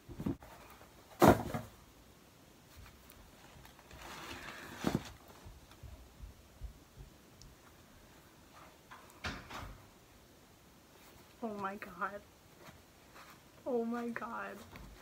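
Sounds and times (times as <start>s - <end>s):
cardboard box thump: 1.2s - 1.8s
packaging rustling: 2.8s - 5.4s.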